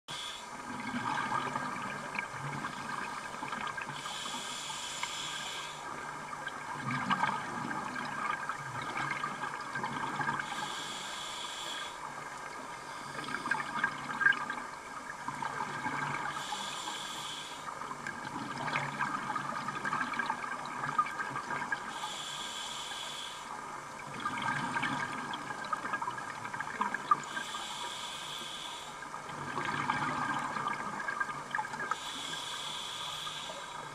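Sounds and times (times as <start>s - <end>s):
regulator hiss on inhalation: 0.1s - 0.5s, 4.0s - 5.9s, 10.4s - 12.0s, 16.3s - 17.7s, 21.9s - 23.6s, 27.3s - 29.0s, 31.9s - 33.9s.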